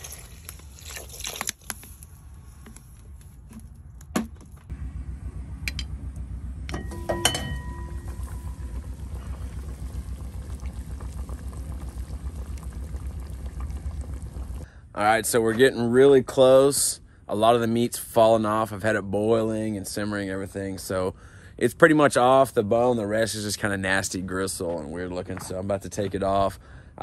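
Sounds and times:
pot boiling rumble: 4.7 - 14.7
metal lid clanking on pot: 6.7 - 7.9
water pouring into a pot: 7.0 - 14.7.

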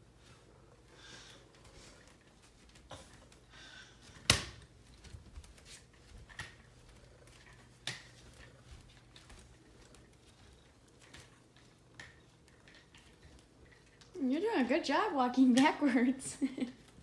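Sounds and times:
toy stroller rattling on tile: 4.6 - 14.7.

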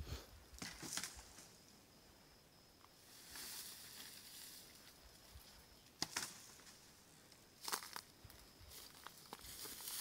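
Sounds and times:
dry grass rustling: 3.0 - 10.0
footstep crunching on twigs: 6.0 - 10.0.

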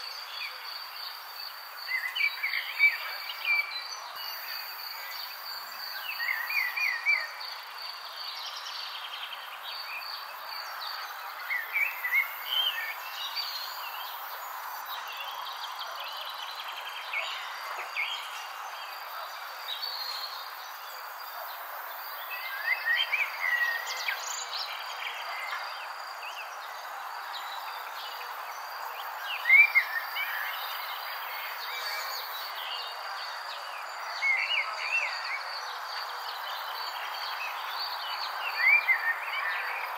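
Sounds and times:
background hiss: 0.0 - 39.9.

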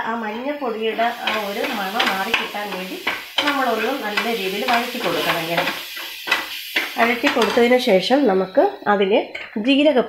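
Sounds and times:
food sizzling in a frying pan: 0.0 - 9.8
spoon stirring and scraping: 0.9 - 7.8
spoon clicking on pan: 1.2 - 7.7.

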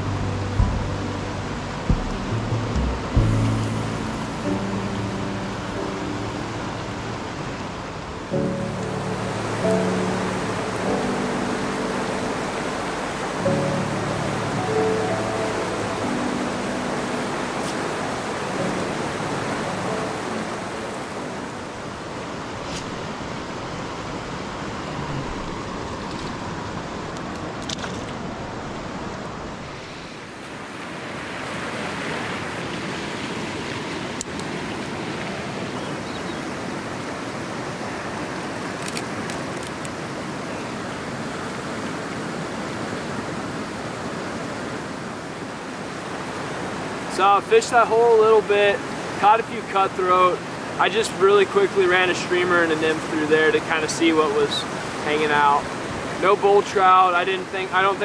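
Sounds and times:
fast-flowing river rushing: 0.0 - 58.0.

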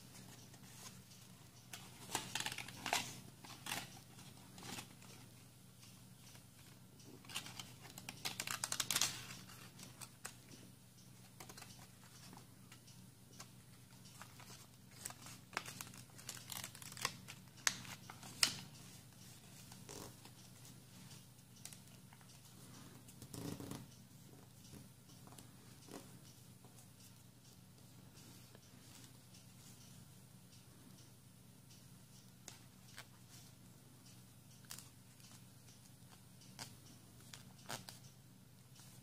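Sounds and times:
crackly paper clicks: 0.1 - 22.5, 34.6 - 38.1.

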